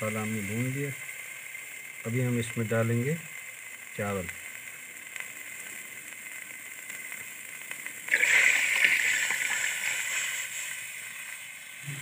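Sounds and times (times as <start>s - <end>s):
rice and water splashing into pot: 3.3s - 12.0s.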